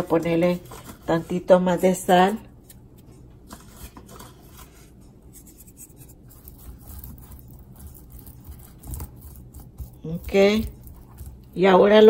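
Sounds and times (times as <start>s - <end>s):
hands scratching sprinkling salt: 3.5s - 11.6s.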